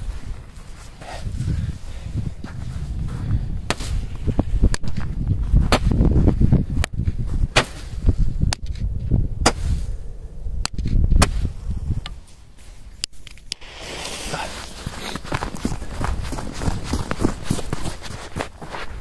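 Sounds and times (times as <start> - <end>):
firework sharp pops: 13.2 - 15.3.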